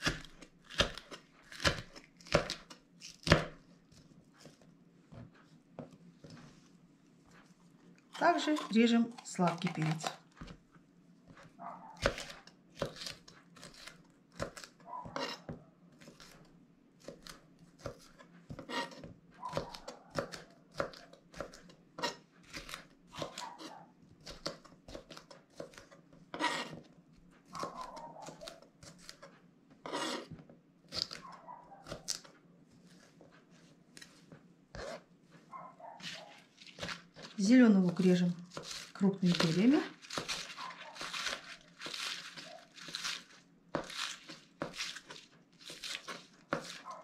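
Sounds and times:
knife slicing pepper on board: 12.0 - 16.4, 17.0 - 26.9, 27.6 - 31.2, 34.7 - 35.0, 36.0 - 47.0.

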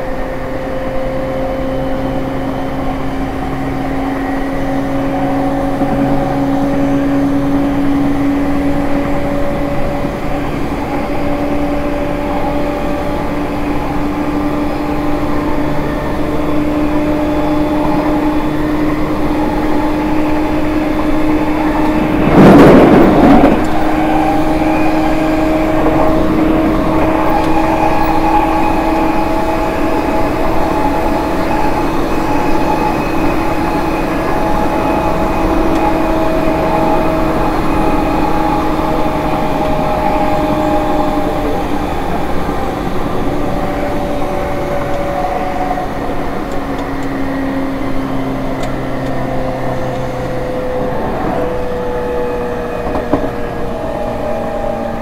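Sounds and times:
train inverter whine rising: 0.0 - 55.0
train running noise: 0.0 - 55.0
loud noisy burst: 18.6 - 46.1.

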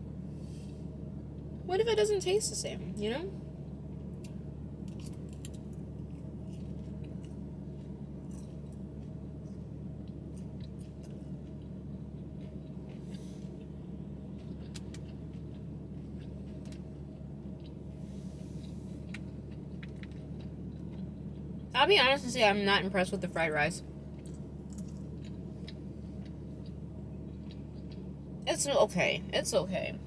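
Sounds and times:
steady low hum: 0.0 - 30.0
person chewing: 4.1 - 21.7, 24.1 - 28.4.

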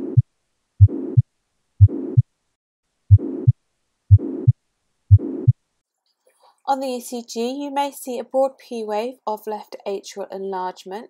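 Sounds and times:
heartbeat with murmur: 0.0 - 2.3, 3.1 - 5.6.

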